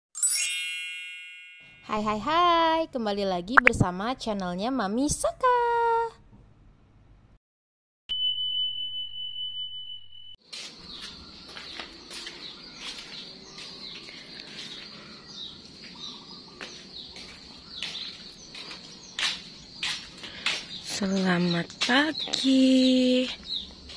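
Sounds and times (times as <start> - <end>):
outdoor background noise: 10.4 - 23.9
small birds chirping: 10.5 - 23.9.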